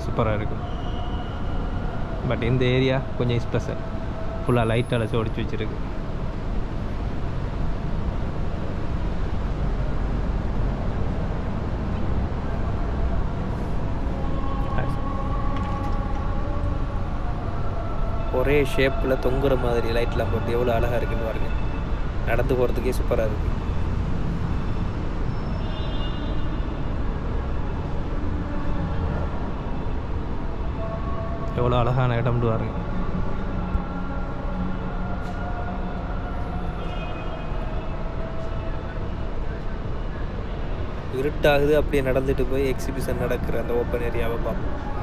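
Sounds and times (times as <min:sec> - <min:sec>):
low outdoor rumble and hiss: 0:00.0 - 0:25.6, 0:35.8 - 0:45.0.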